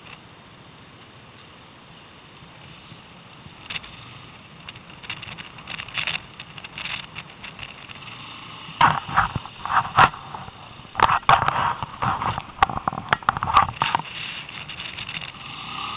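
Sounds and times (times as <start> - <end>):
short crackling noises: 2.7 - 15.9
atv engine running: 3.4 - 15.9.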